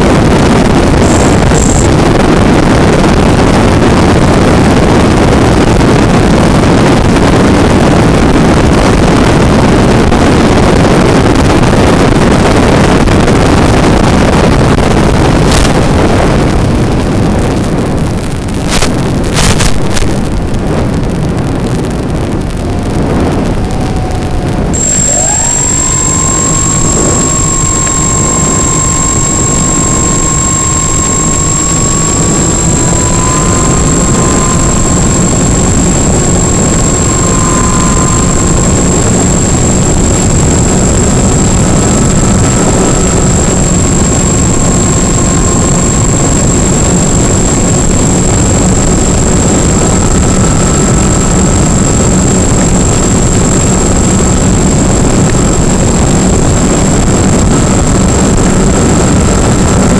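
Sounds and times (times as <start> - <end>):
electric motors and propellers whining: 0.0 - 17.2, 21.9 - 59.9
wind rushing: 0.0 - 59.9
steady high whistle: 23.6 - 54.5.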